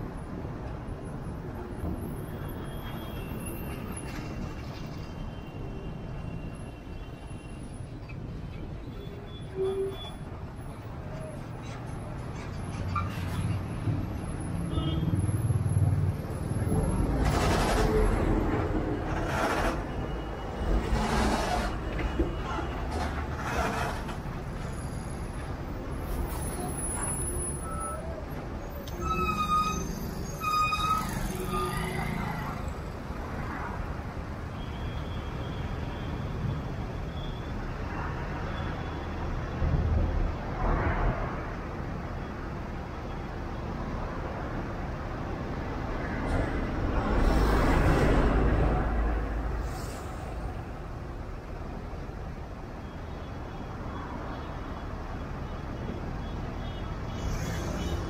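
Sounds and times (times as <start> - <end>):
vehicle horn beeps: 14.7 - 15.2.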